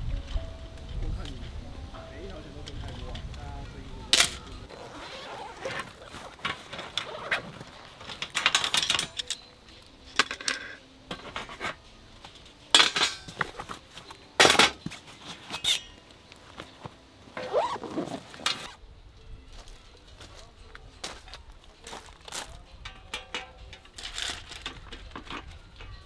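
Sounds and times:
metal panels clinking: 0:04.1 - 0:16.2, 0:22.0 - 0:26.0
zipper opening: 0:04.7 - 0:08.0, 0:17.4 - 0:18.8.

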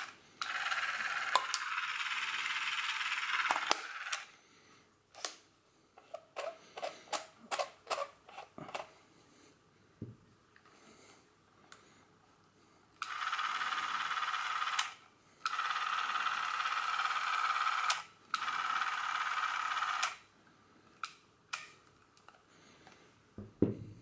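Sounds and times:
film camera motor whirring: 0:00.0 - 0:04.3, 0:13.0 - 0:20.2
handling thump: 0:23.4 - 0:24.0.

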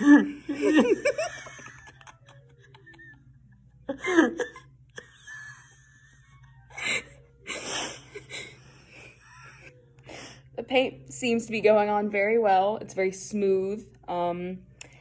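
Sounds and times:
people laughing: 0:00.0 - 0:09.8.

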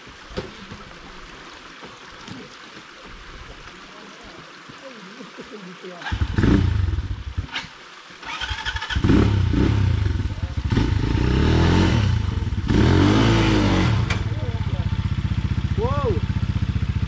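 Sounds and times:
dirt bike engine revving: 0:06.0 - 0:17.0.

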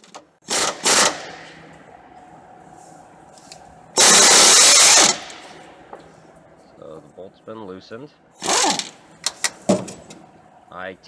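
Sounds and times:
impact wrench hammering: 0:04.0 - 0:06.1.

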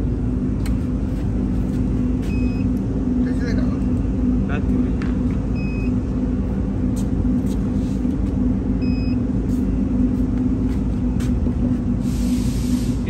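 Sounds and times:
low machine hum: 0:00.0 - 0:13.0
short high beeps: 0:08.8 - 0:09.2.

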